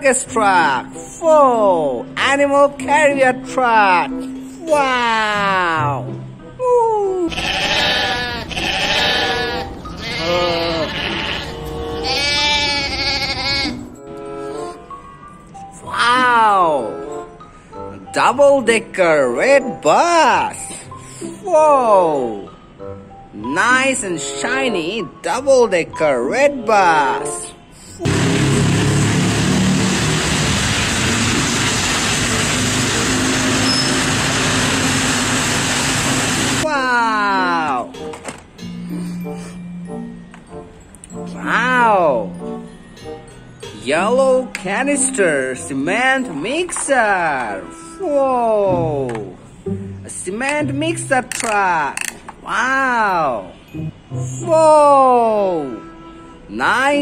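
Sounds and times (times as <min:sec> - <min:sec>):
traffic noise: 0:07.3 - 0:13.4
sheep bleating: 0:07.3 - 0:13.9
bus engine running: 0:28.0 - 0:36.6
tyres on wet road: 0:28.0 - 0:36.7.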